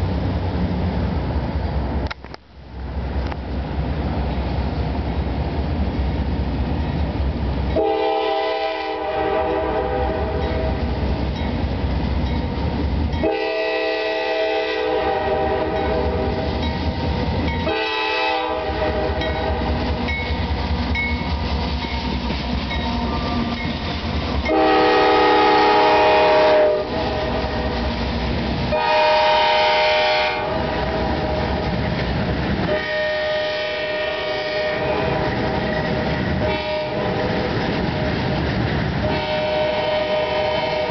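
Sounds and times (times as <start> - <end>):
diesel locomotive rumble: 0.0 - 40.9
wheels clacking on rails: 0.0 - 40.9
locomotive air horn blasts: 7.8 - 10.8, 13.2 - 16.4, 17.6 - 19.7, 22.8 - 23.6, 24.4 - 27.6, 28.7 - 31.4, 32.6 - 35.7, 36.4 - 37.4, 39.0 - 40.9.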